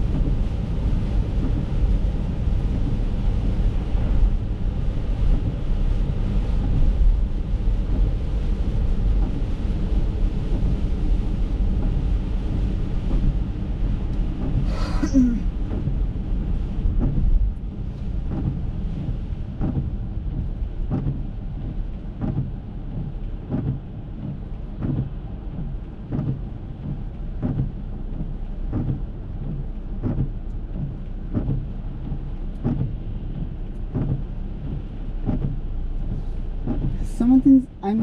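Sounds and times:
rain and car rumble: 0.0s - 38.0s
windshield wipers knocking: 15.7s - 17.4s, 18.2s - 37.1s.

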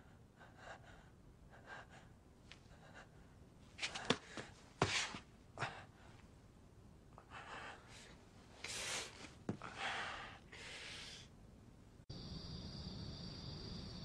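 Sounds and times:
man breathing heavily: 5.5s - 6.2s, 7.2s - 11.3s
crickets chirring: 12.1s - 14.0s.

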